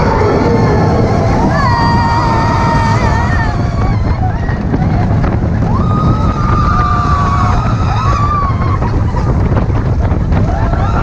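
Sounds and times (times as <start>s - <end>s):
riders screaming: 0.0s - 4.7s, 5.6s - 9.2s
roller coaster rumbling on track: 0.0s - 11.0s
wind on microphone: 0.0s - 11.0s.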